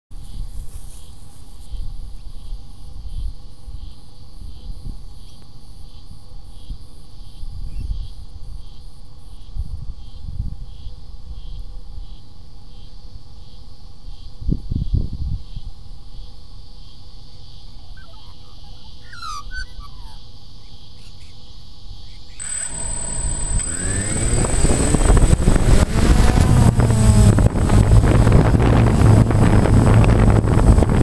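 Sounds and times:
cricket chirping: 0.2s - 31.0s
faint steady hum: 22.4s - 31.0s
wind buffeting microphone: 22.9s - 31.0s.

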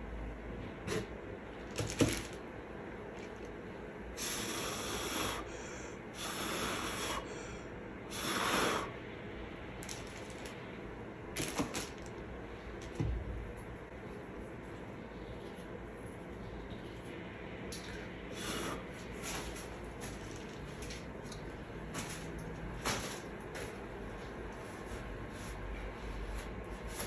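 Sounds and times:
person blowing breathy puffs: 4.2s - 9.0s, 18.3s - 19.0s.

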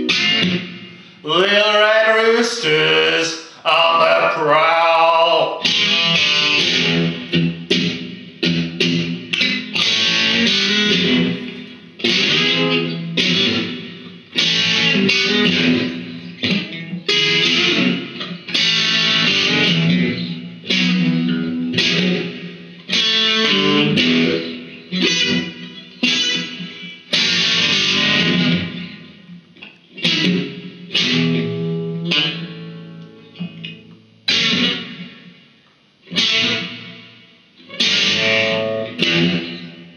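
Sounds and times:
electric guitar playing blues: 0.0s - 39.9s.

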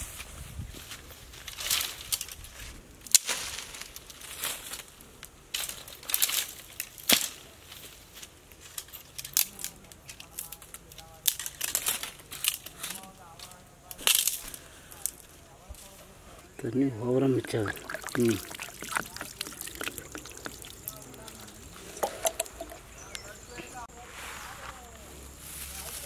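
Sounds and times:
dry leaves rustling: 0.0s - 15.3s, 23.9s - 26.0s
dry branches snapping: 3.0s - 4.9s, 5.5s - 7.4s, 13.9s - 14.5s.

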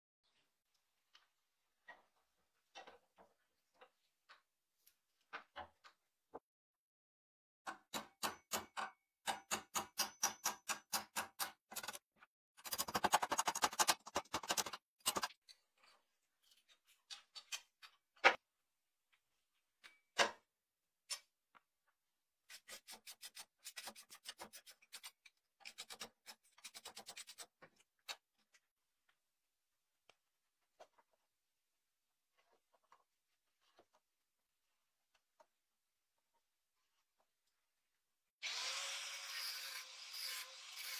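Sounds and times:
hammer tapping a steel punch: 7.7s - 11.6s.

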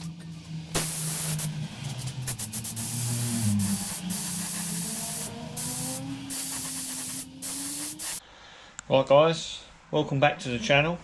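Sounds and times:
paint spray gun hissing: 0.8s - 1.5s, 2.2s - 8.2s.

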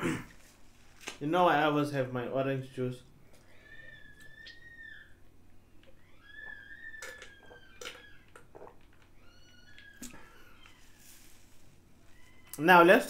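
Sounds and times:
person gulping a drink: 7.0s - 9.1s.

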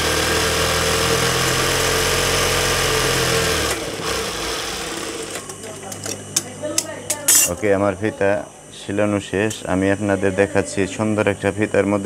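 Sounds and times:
sewing machine running: 0.0s - 6.2s.

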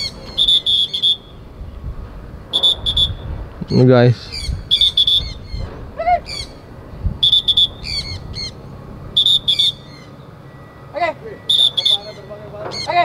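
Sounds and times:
parrot shrill screeching calls: 0.0s - 1.2s, 4.2s - 6.6s, 7.2s - 8.6s, 9.2s - 10.2s.

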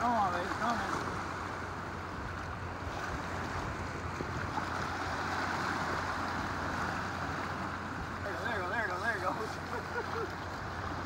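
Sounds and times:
waves lapping on shore: 0.0s - 11.0s
wind on microphone: 1.0s - 8.2s.

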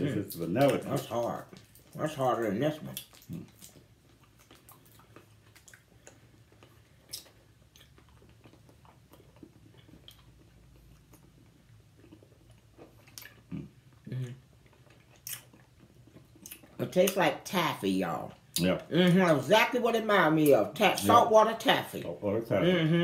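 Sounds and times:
faint chewing of taffy: 0.1s - 17.2s.

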